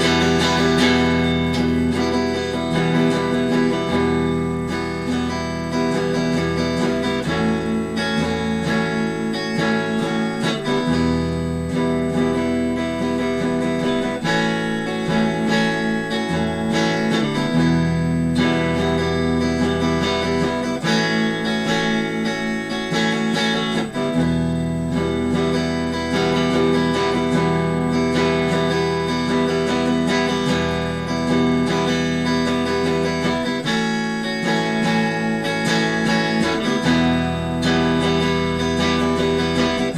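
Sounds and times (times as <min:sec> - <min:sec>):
electric guitar riff: 0:00.0 - 0:39.9.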